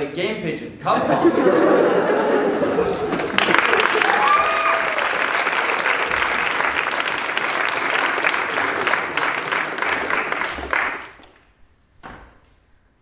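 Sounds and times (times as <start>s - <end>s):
audience applauding: 2.0s - 11.4s.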